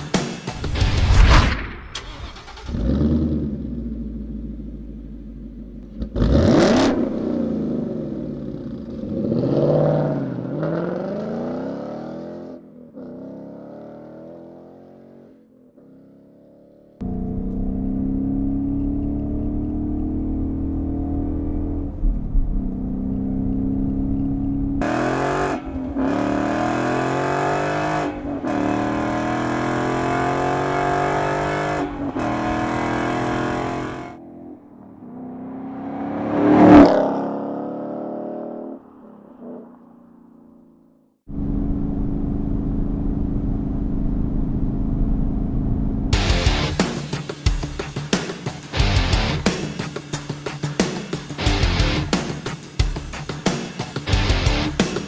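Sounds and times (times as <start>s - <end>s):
car engine revving: 2.0s - 15.2s, 17.0s - 39.6s
car engine accelerating: 17.0s - 40.7s, 51.4s - 52.2s.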